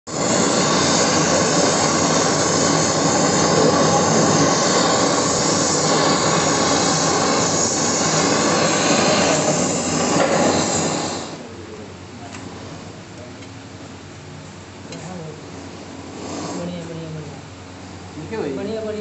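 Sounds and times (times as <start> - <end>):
torch flame hissing: 0.1 - 13.2, 14.9 - 19.0.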